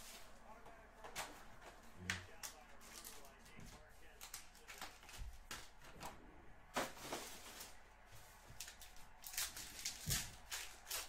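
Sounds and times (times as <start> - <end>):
foil wrapper crinkling: 8.6 - 11.0.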